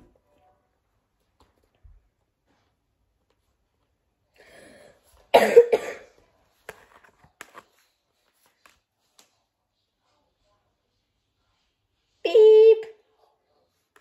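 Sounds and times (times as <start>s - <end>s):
person coughing: 5.3s - 6.2s.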